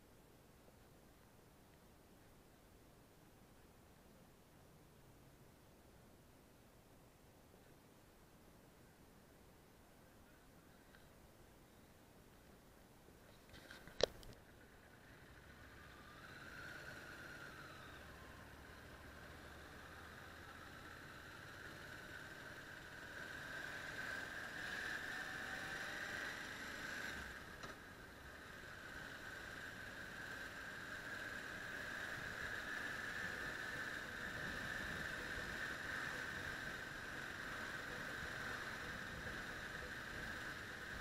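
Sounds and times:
muffled wind and road hiss: 0.0 - 41.0
motorcycle engine: 14.4 - 41.0.

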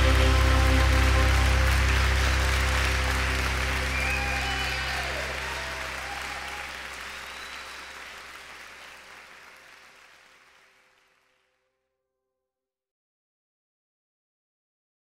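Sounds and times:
crowd applauding: 0.0 - 11.5.

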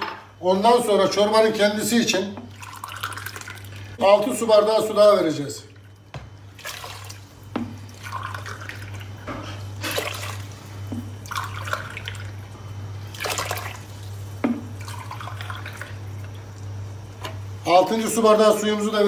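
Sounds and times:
water splashing onto lentils: 2.5 - 4.0, 5.6 - 9.1, 9.8 - 12.4, 13.0 - 16.7.

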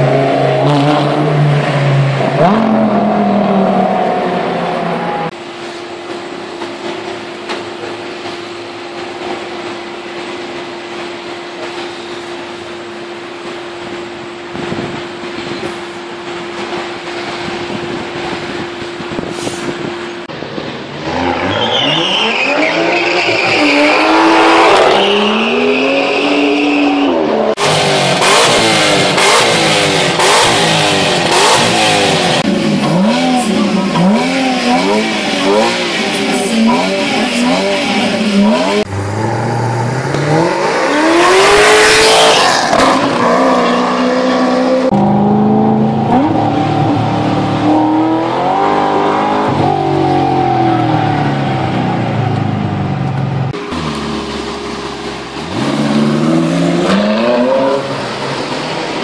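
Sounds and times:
car engines revving: 0.0 - 59.0
high squeal: 21.2 - 27.4.

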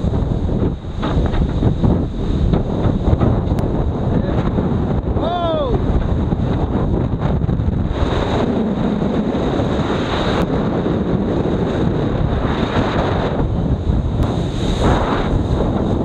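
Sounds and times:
breaking seas rushing: 0.0 - 16.0
wind blowing across microphone: 0.0 - 16.0.

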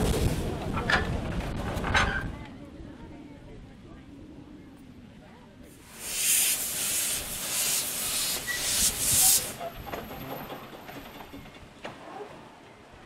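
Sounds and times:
steam locomotive hissing steam: 5.7 - 10.1.

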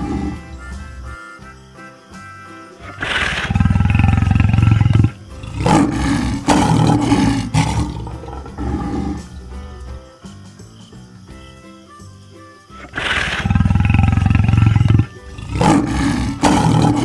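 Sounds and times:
lion roaring: 0.0 - 0.6, 2.9 - 9.8, 13.0 - 17.0
background music: 0.0 - 17.0.

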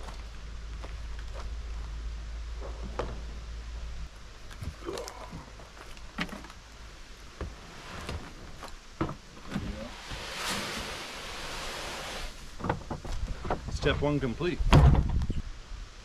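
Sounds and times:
feed pouring into plastic tote: 9.8 - 12.4.

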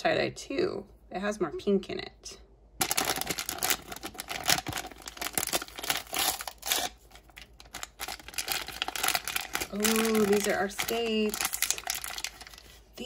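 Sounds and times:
packet crinkling and tearing: 2.8 - 12.9.

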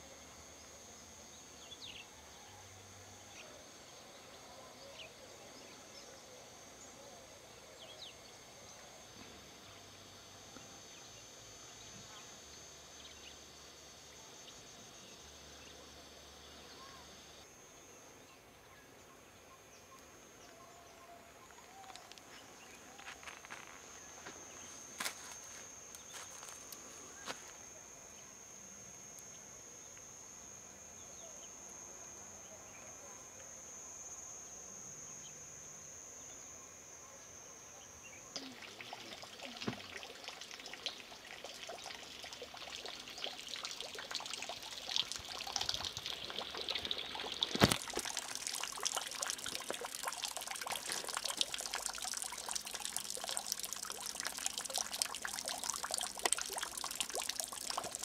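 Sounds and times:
insect trilling: 38.0 - 58.0
stream trickling over stones: 38.4 - 58.0.

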